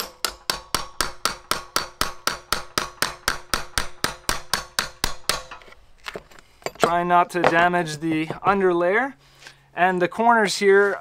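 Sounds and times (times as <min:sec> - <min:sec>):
chisel scraping and chipping: 0:00.0 - 0:07.9.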